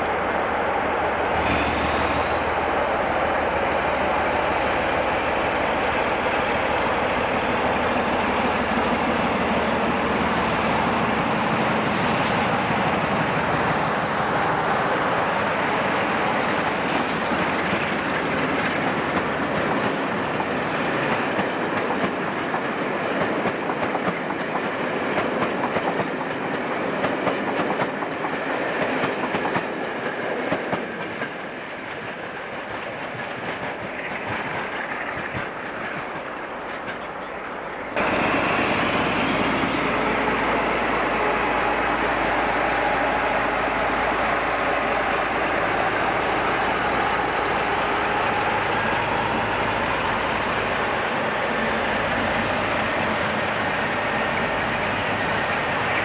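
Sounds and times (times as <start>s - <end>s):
diesel locomotive passing: 0.0s - 56.0s
train wheels clicking over rail joints: 4.6s - 40.4s.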